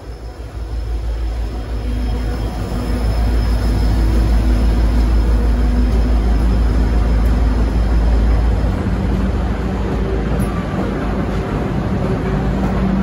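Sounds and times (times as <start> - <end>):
carriages rolling past: 0.0 - 13.0
locomotive engine rumbling: 0.0 - 13.0.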